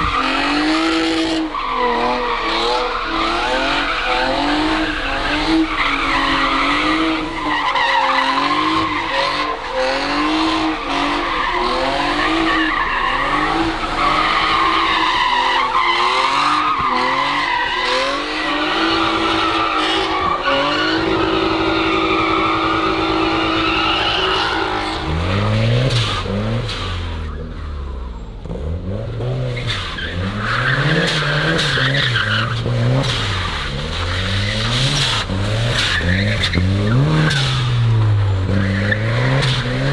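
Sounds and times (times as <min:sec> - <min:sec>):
tyres squealing: 0:00.0 - 0:26.3
car engine revving: 0:00.0 - 0:39.9.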